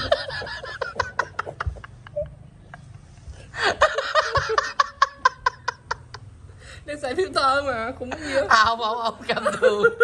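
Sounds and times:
man laughing hard: 0.0 - 2.3, 3.6 - 6.0.

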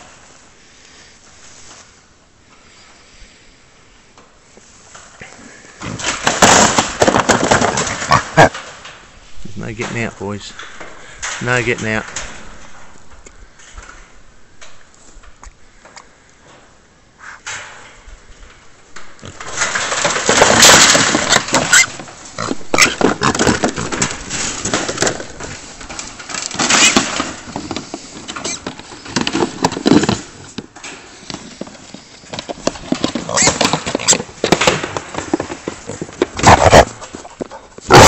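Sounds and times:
wire cage clanking and rattling: 17.4 - 31.1.

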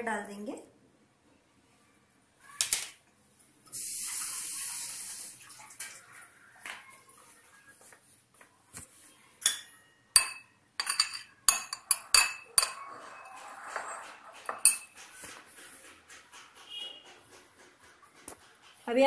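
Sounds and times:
spoon clinking on glass bowl: 9.4 - 14.9.

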